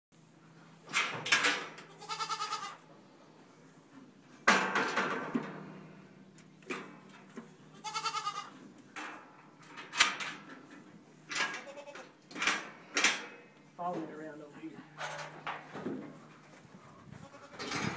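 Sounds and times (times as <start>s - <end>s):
metal gates clanking and rattling: 0.8s - 2.2s, 4.4s - 5.8s, 8.9s - 16.5s, 17.5s - 17.9s
goat bleating: 1.8s - 2.8s, 7.7s - 8.6s, 11.6s - 12.2s.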